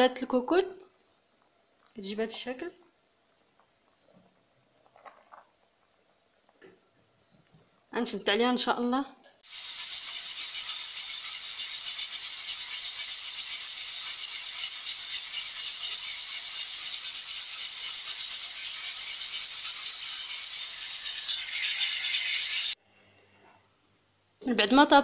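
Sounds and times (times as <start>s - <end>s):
pressure cooker valve rattling: 9.4s - 22.8s
steam hissing: 9.4s - 22.8s.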